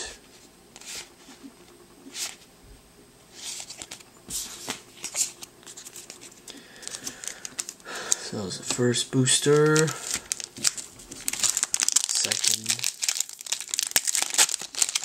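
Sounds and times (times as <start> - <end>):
trading cards flipped by hand: 3.3 - 8.8.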